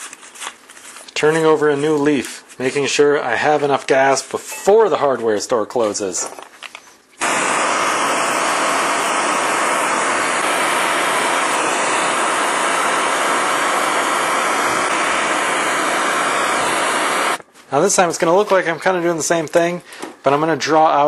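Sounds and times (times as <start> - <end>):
propane torch hissing: 7.2 - 17.4.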